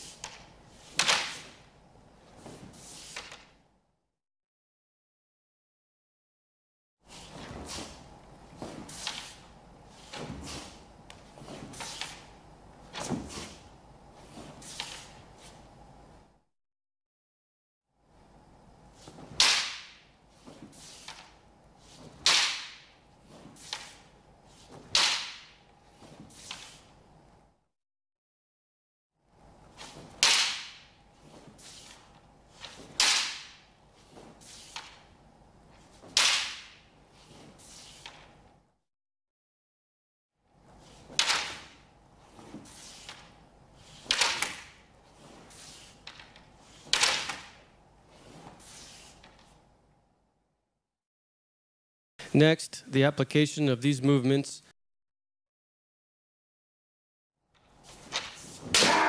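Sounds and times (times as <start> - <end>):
bamboo swords clacking: 0.0 - 1.7, 3.0 - 3.6, 8.6 - 9.5, 10.1 - 12.3, 19.0 - 21.4, 22.0 - 25.7, 29.7 - 35.1, 35.8 - 38.4, 41.0 - 47.8, 57.9 - 59.0.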